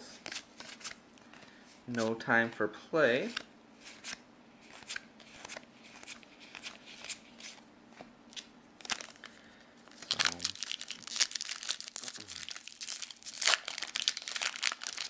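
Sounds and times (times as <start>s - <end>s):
foil pack crinkling and tearing: 9.9s - 15.0s.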